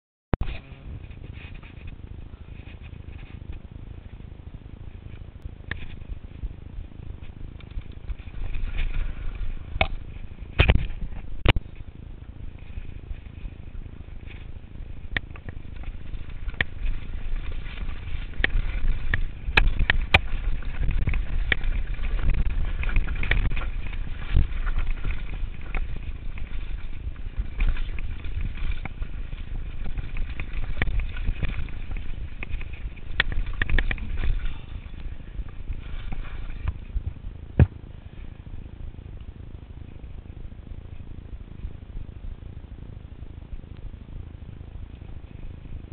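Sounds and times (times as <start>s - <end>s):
bike tyre noise on dirt: 0.4s - 45.9s
wind rumble on microphone: 0.4s - 45.9s
bike clicks and rattles: 5.0s - 38.4s.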